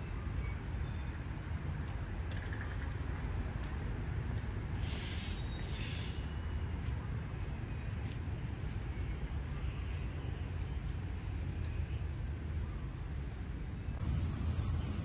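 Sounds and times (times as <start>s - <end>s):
steady low rumble: 10.0s - 15.0s.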